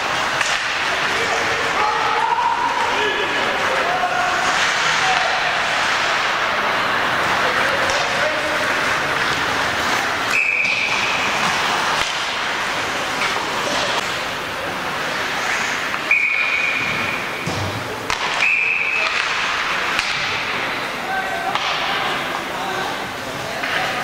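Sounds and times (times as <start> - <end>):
arena crowd noise: 0.0 - 24.0
referee whistle blasts: 10.3 - 11.0, 16.1 - 17.0, 18.4 - 19.2.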